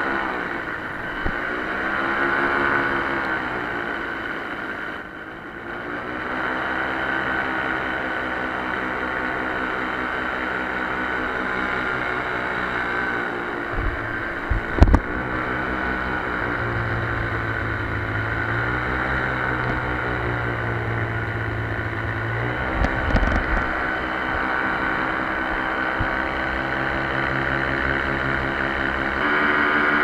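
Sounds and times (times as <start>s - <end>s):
small engine running: 0.0s - 30.0s
low thumps: 13.7s - 15.5s.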